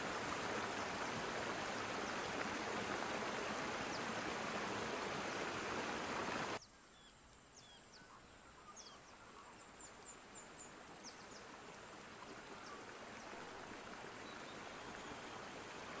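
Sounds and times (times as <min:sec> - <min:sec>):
stream rushing: 0:00.0 - 0:06.6, 0:10.1 - 0:16.0.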